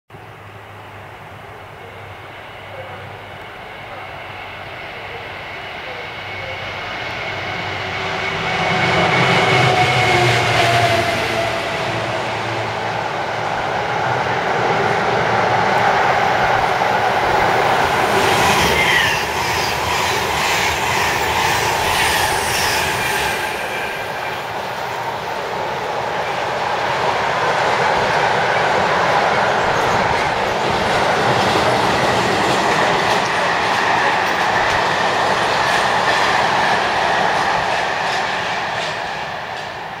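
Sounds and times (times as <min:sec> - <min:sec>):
electric train rushing past: 0:00.2 - 0:40.0
train wagons clattering over rails: 0:27.6 - 0:40.0.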